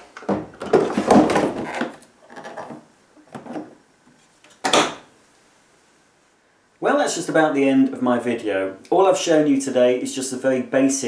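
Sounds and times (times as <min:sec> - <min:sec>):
plastic unit scraping and knocking: 0:00.2 - 0:03.7.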